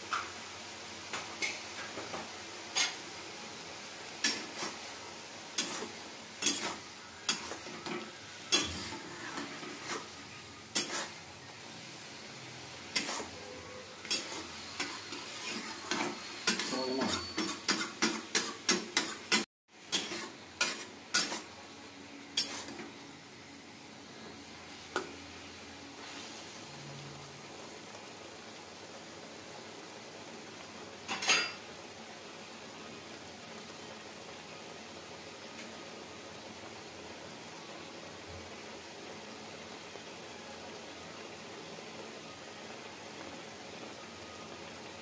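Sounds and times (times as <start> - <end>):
frying sizzle: 0.0 - 45.0
metal spatula scraping a wok: 4.2 - 4.8, 5.6 - 7.9, 8.5 - 11.2, 12.8 - 21.5, 22.4 - 22.8.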